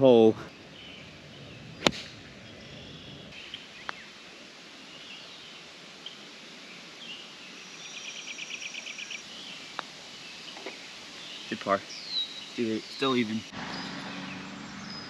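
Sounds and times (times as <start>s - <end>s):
faint bird chirps: 0.1s - 4.2s, 4.8s - 15.0s
golf club hitting ball: 1.8s - 2.2s.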